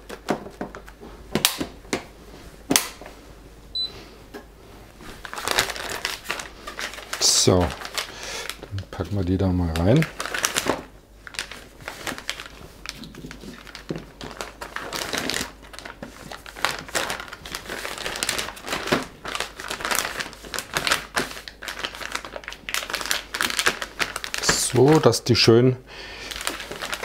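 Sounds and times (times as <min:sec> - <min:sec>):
plastic bag crinkling and rustling: 0:04.9 - 0:25.6, 0:26.2 - 0:27.0.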